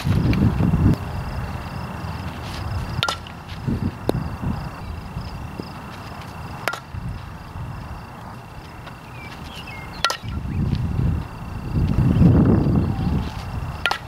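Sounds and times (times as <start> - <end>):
bat hitting softball: 3.0 - 3.3, 6.6 - 6.9, 10.0 - 10.4.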